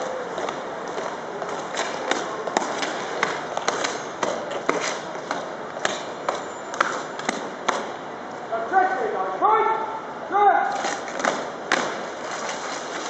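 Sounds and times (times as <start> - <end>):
crowd murmur: 0.0 - 5.1.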